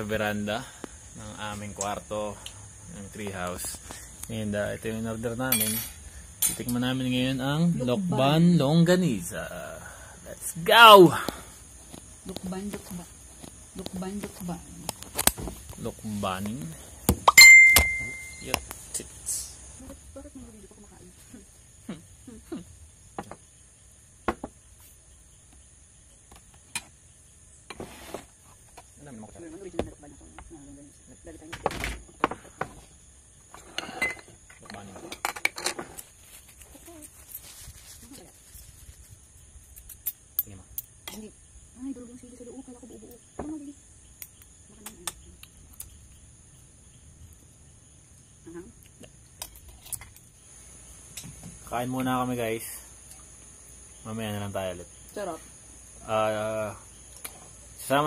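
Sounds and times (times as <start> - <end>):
crickets chirring: 0.0 - 58.0
insect drone: 0.0 - 58.0
cutlery clinking against plates: 5.5 - 6.8.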